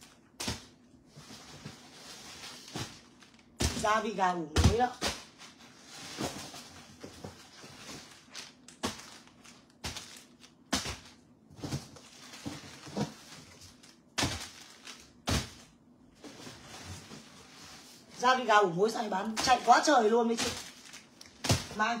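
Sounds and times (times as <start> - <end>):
cardboard rustling: 0.0 - 4.0, 5.2 - 15.6, 16.2 - 18.1, 19.4 - 21.9.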